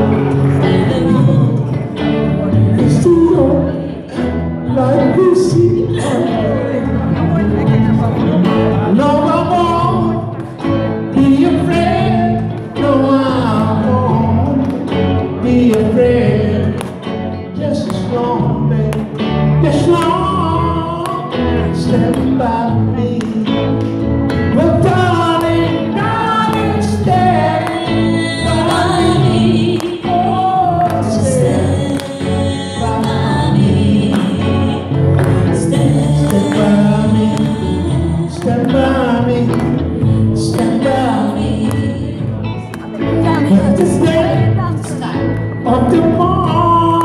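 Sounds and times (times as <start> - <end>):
guitars playing: 0.0 - 47.0
man singing: 0.0 - 47.0
woman singing: 0.4 - 1.8, 24.6 - 39.4, 40.4 - 47.0
cajon beat: 4.7 - 47.0.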